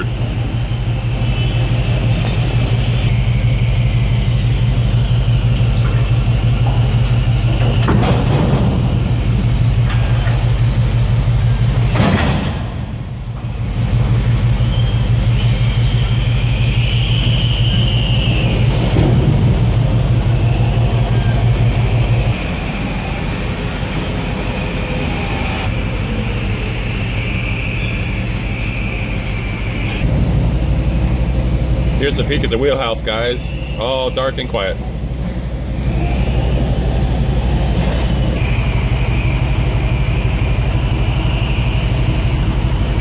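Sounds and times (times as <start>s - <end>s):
low machinery hum: 0.0s - 43.0s
faint high whine: 13.1s - 43.0s.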